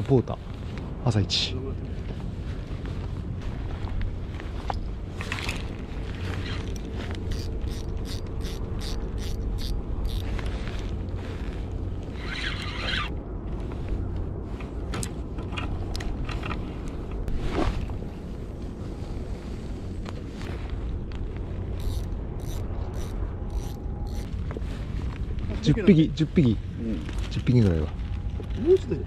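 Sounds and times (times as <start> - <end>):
fishing reel gears clicking: 7.3 - 10.3, 21.8 - 24.3.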